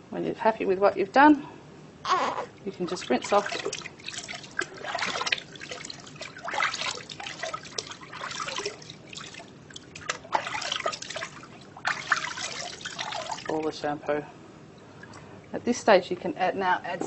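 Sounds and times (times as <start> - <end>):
water pouring into plastic bath: 2.6 - 13.8.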